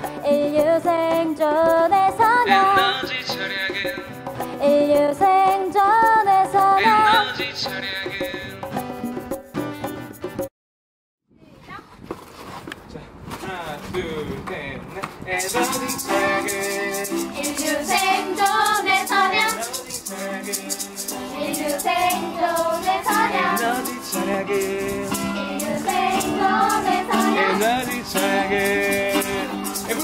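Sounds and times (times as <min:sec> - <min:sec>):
strummed acoustic strings: 0:00.0 - 0:05.7, 0:15.3 - 0:30.0
voices singing: 0:00.3 - 0:08.8, 0:15.1 - 0:30.0
shaker rattling: 0:15.4 - 0:30.0.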